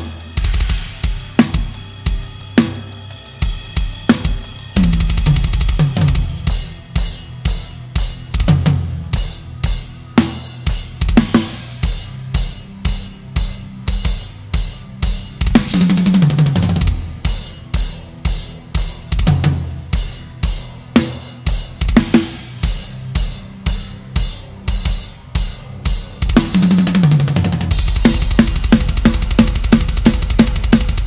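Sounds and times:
cymbal wash: 0.0s - 31.0s
heavy metal band playing: 0.0s - 31.0s
bass drum and snare hits: 3.9s - 6.8s, 26.0s - 31.0s.

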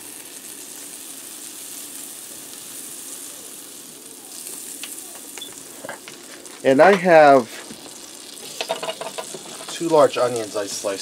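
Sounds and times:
butter sizzling in a skillet: 0.0s - 11.0s.

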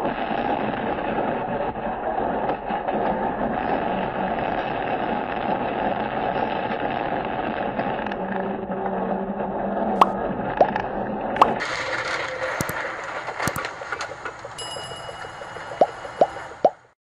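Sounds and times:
short sharp clicks: 12.6s - 12.8s, 13.4s - 13.7s.

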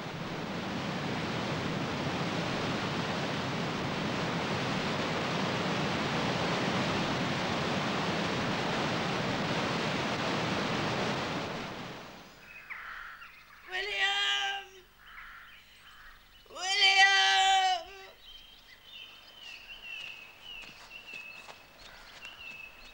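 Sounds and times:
waterfall rushing: 0.0s - 12.4s.

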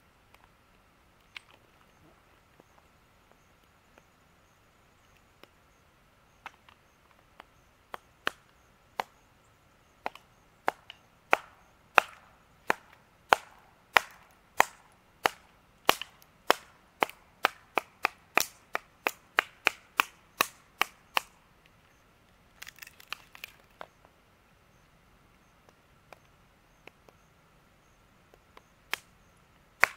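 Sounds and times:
blade chopping wood: 10.0s - 21.3s
small wood pieces clattering: 22.6s - 23.8s.

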